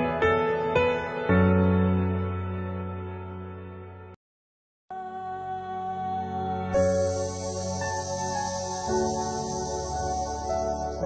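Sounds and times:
slow new-age music: 0:04.9 - 0:11.0.

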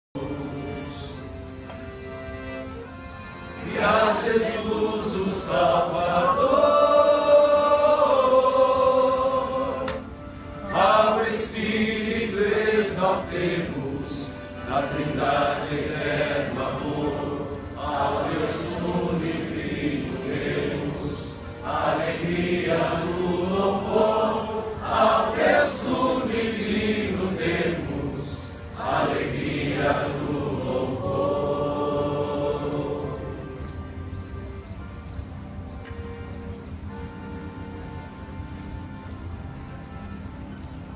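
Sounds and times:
voices chanting a hymn: 0:00.2 - 0:34.7.

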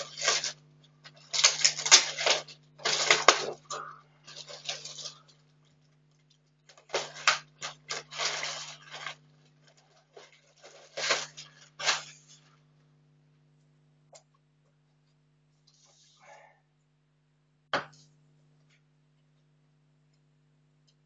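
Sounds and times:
plastic bag crinkling: 0:00.0 - 0:12.6
faint low hum: 0:00.0 - 0:21.0.

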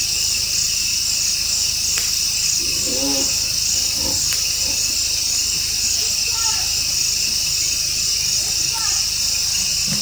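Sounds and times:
crickets and insects chirping: 0:00.0 - 0:10.0
low voice-like call: 0:02.6 - 0:05.3.

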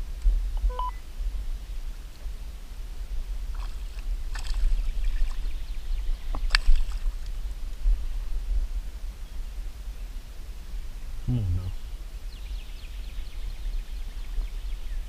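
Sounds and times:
low steady rumble: 0:00.0 - 0:15.0
fish splashing in water: 0:03.5 - 0:05.6, 0:06.2 - 0:07.3.

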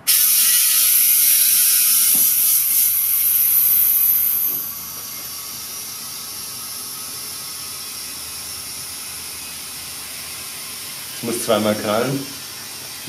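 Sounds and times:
compressed air hissing into tyre: 0:00.0 - 0:13.0.

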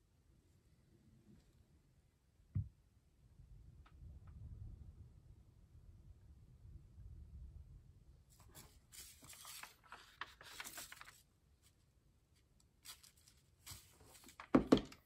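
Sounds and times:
paper and plastic rustling: 0:08.4 - 0:11.8, 0:12.7 - 0:15.0.

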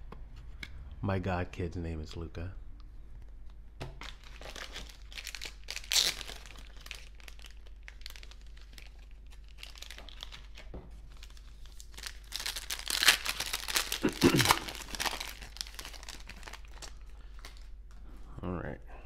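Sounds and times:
foil wrapper crinkling: 0:04.0 - 0:17.7.

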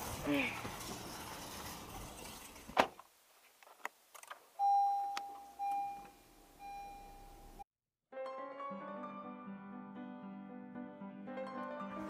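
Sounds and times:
car warning chime dinging: 0:04.6 - 0:07.6.

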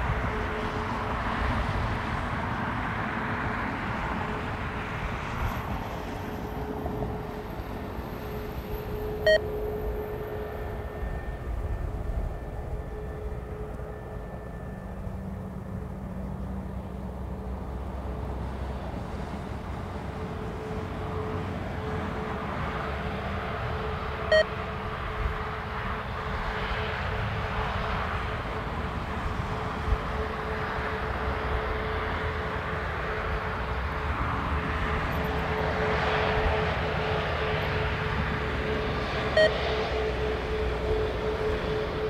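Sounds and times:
jet engines whining: 0:00.0 - 0:17.9, 0:18.7 - 0:42.0.

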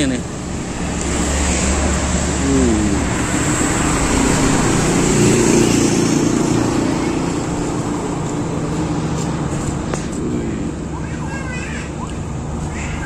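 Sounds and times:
roadside traffic: 0:00.0 - 0:13.0
vehicle engine passing: 0:00.0 - 0:13.0.

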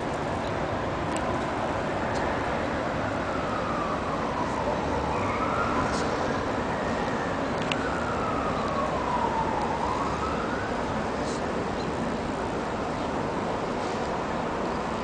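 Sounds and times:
city traffic hiss: 0:00.0 - 0:15.0
emergency vehicle siren wailing: 0:01.8 - 0:13.6.

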